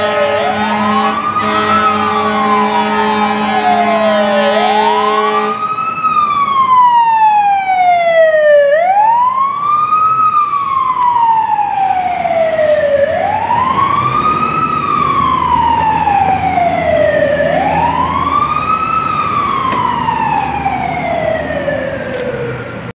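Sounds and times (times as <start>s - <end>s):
fire truck siren wailing: 0.0s - 22.9s
traffic noise: 0.0s - 23.0s.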